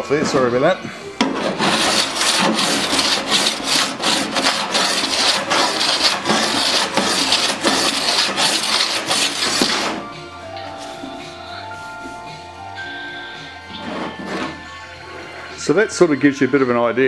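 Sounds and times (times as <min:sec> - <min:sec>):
metal file rasping on steel: 0:01.2 - 0:10.1, 0:13.7 - 0:14.7.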